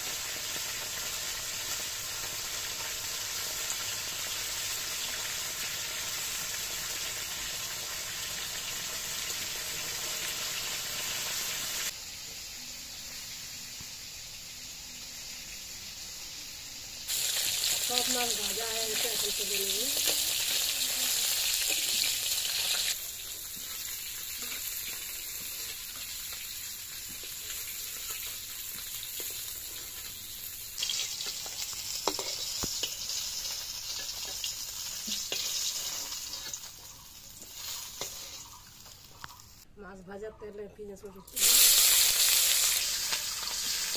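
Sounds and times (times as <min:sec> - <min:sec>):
fish sizzling in hot oil: 0:00.0 - 0:39.7, 0:41.3 - 0:43.9
metal spatula scraping pan: 0:37.4 - 0:38.5.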